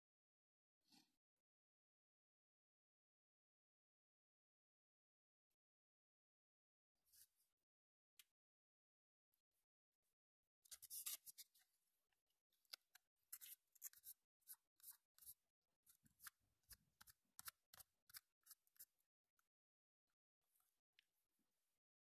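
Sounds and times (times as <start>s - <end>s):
scratching a scratch card: 13.3s - 15.4s, 16.0s - 18.9s.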